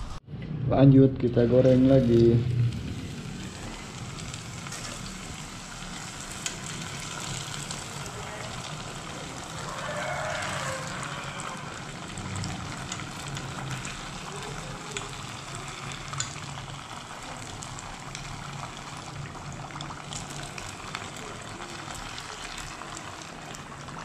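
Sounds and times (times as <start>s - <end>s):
food deep-frying in oil: 1.3s - 24.0s.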